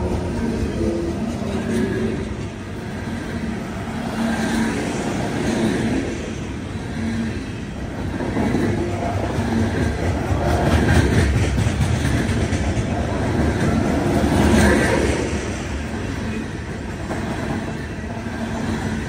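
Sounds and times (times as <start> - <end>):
train wheels rumbling on rail: 0.0 - 19.0
train wheel clicks: 8.3 - 15.0.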